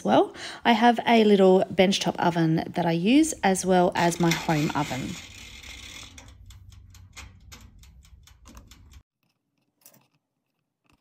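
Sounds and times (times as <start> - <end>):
clockwork timer ticking: 4.0 - 9.0.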